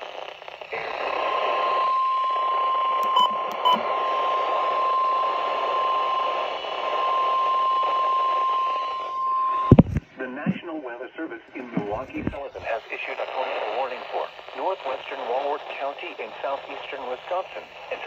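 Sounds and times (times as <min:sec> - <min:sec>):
radio static hiss: 0:00.0 - 0:18.0
weather radio alarm tone: 0:00.7 - 0:09.8, 0:11.7 - 0:18.0.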